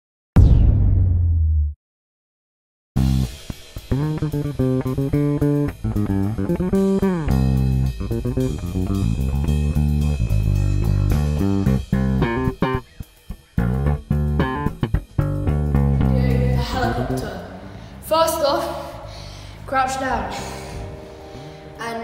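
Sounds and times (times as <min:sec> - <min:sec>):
steady drum beat: 0:03.0 - 0:17.1
guitar and bass music: 0:03.0 - 0:22.0.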